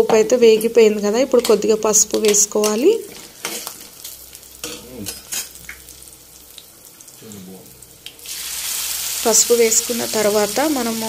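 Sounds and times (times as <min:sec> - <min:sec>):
oil sizzling in a pan: 0:03.0 - 0:11.0
spatula stirring and scraping pan: 0:03.1 - 0:04.0.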